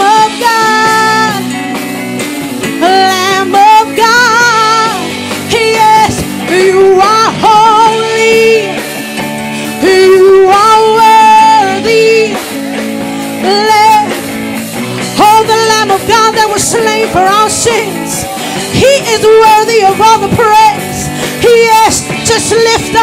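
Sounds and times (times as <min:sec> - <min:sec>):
woman singing with vibrato: 0:00.0 - 0:01.6, 0:02.6 - 0:08.8, 0:09.6 - 0:12.5, 0:13.3 - 0:14.2, 0:15.0 - 0:23.0
electric guitar chords: 0:00.0 - 0:23.0
keyboard chords: 0:00.0 - 0:23.0.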